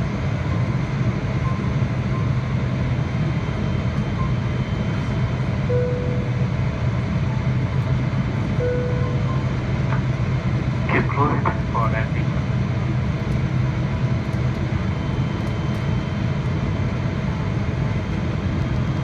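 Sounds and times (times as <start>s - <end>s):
airplane cabin roar: 0.0s - 19.0s
low engine hum: 0.0s - 19.0s
brief steady tones: 5.7s - 6.6s, 8.6s - 9.6s.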